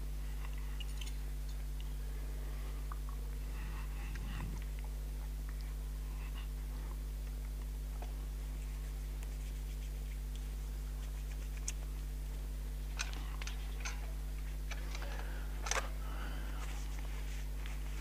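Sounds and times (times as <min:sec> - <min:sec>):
low electrical hum: 0:00.0 - 0:18.0
soft rustling: 0:06.6 - 0:12.4, 0:16.5 - 0:18.0.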